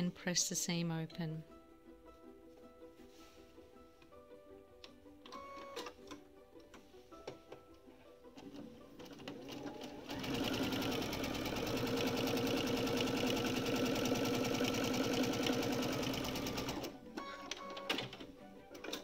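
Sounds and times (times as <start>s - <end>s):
sewing machine stitching: 8.4s - 19.0s.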